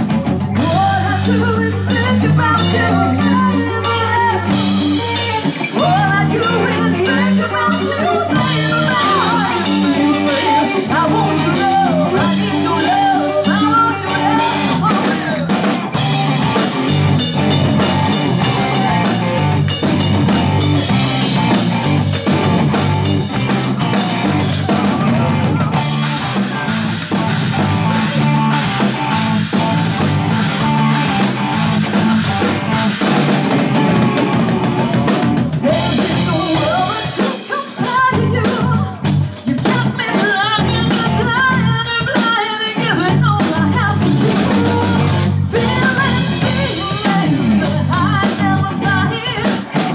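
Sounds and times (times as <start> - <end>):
drum kit: 0.0 - 49.9
electric bass: 0.0 - 49.9
electric guitar: 0.0 - 49.9
woman singing: 0.5 - 15.6, 35.6 - 49.9.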